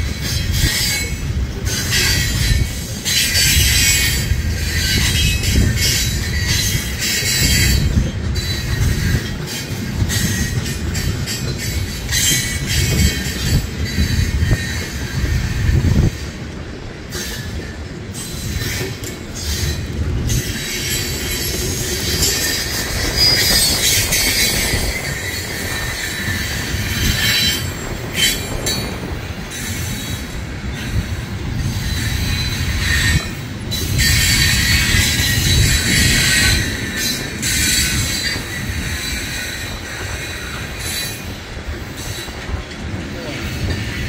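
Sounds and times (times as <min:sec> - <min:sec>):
train wheels rumbling on rails: 0:00.0 - 0:44.0
high-pitched wheel squeal: 0:18.2 - 0:41.4.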